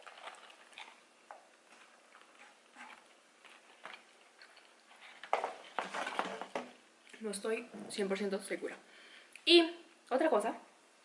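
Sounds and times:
faint chip crunching: 0:00.0 - 0:07.2.

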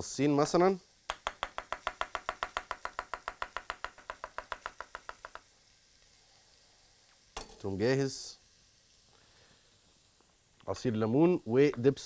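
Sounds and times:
knife chopping on wooden board: 0:01.1 - 0:05.4.

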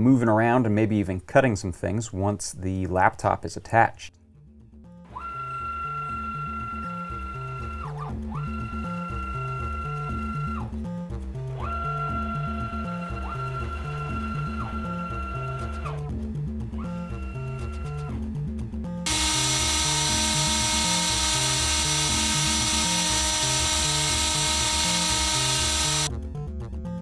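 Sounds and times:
background music with bass: 0:06.4 - 0:27.0
stepper motors whining: 0:19.1 - 0:26.1.

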